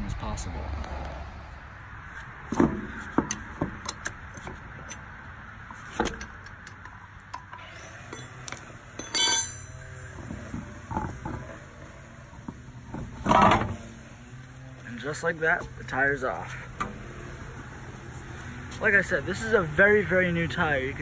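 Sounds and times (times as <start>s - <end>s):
metallic clinks of lug nuts: 6.0s - 10.3s.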